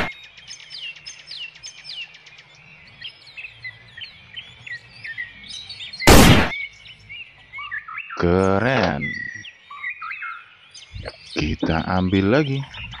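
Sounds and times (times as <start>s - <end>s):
birds chirping: 0.0s - 13.0s
loud gunshot: 6.1s - 6.6s.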